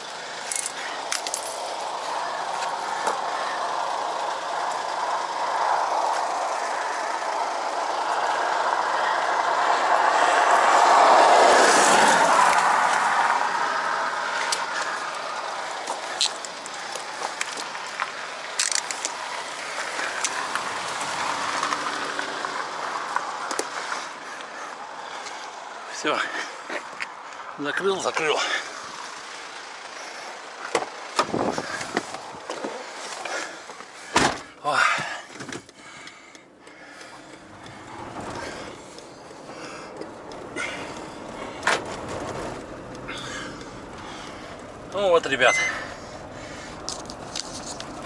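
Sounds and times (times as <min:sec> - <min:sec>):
steady vehicle noise: 0:00.0 - 0:48.0
metal chain links clinking: 0:00.5 - 0:01.8.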